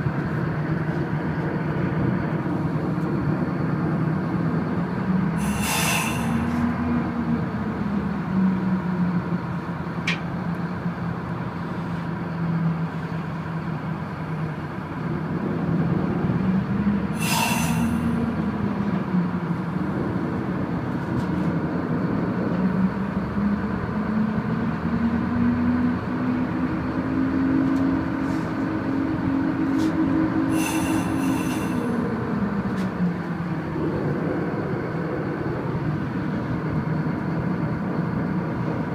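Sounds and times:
tugboat diesel engine droning: 0.0 - 38.9
short hisses: 5.4 - 6.6, 17.2 - 18.2, 30.5 - 31.8.

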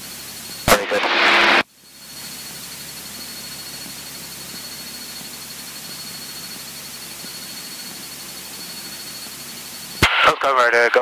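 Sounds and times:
thin high whine: 0.0 - 11.0
intercom hiss: 0.6 - 1.6, 10.0 - 11.0.

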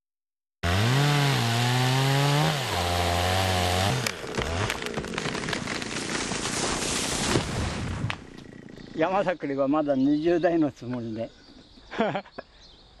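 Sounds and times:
chainsaw cutting tree trunk: 0.6 - 8.8
falling tree cracking and snapping: 1.5 - 8.5.

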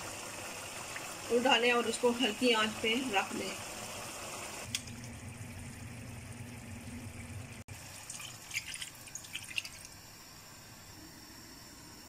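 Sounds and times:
low hum: 4.7 - 7.7
water poured into hot gravy: 7.8 - 10.0.

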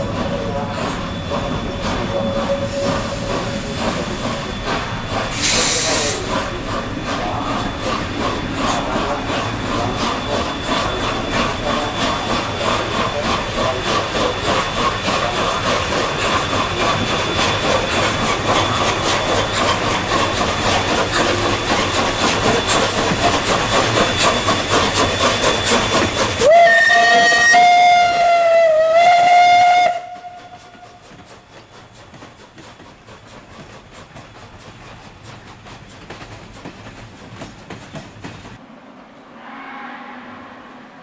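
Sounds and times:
steam hissing: 0.0 - 38.6
steam locomotive exhaust chuffs: 0.0 - 38.6
steam whistle blast: 5.4 - 6.2, 26.4 - 31.0.

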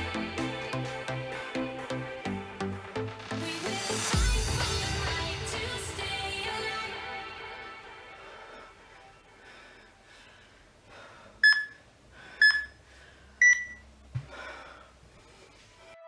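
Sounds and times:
electronic timer beeps: 11.4 - 11.8, 12.4 - 12.8, 13.4 - 13.9.

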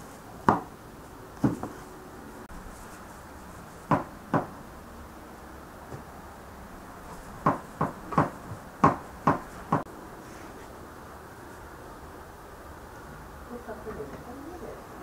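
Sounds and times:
knife chopping on plastic board: 3.9 - 4.5, 7.4 - 9.9.

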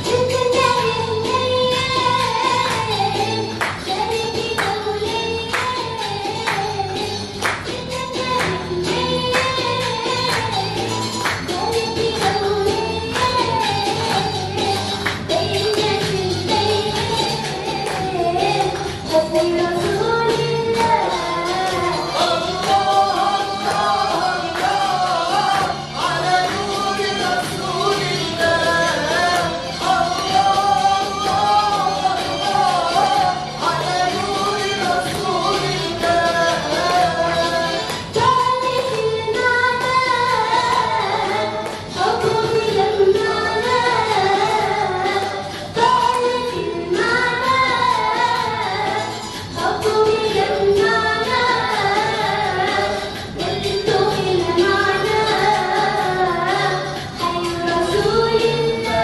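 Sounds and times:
musical accompaniment: 0.0 - 59.0
person singing into a microphone: 0.0 - 59.0
listeners clapping in time: 2.6 - 3.9, 5.5 - 5.8, 6.4 - 7.7, 10.2 - 11.6, 14.0 - 16.1, 22.5 - 28.2, 41.5 - 42.4.

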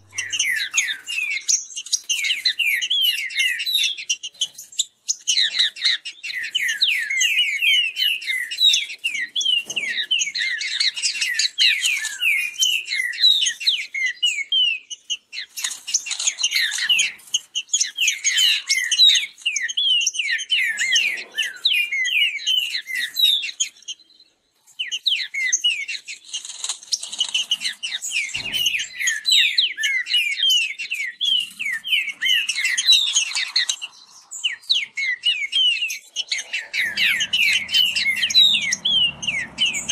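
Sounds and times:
birds singing whistled notes: 0.0 - 39.9.

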